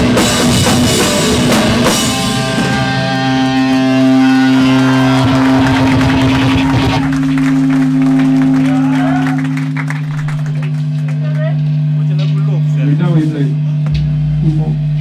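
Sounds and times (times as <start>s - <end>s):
live band playing: 0.0s - 11.2s
guitar amp feedback drone: 0.0s - 15.0s
crowd shouting: 2.6s - 9.8s.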